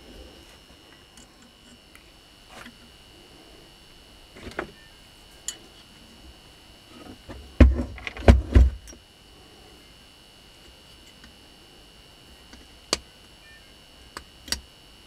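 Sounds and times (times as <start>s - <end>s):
heavy thumps of motor on workbench: 7.0s - 8.9s.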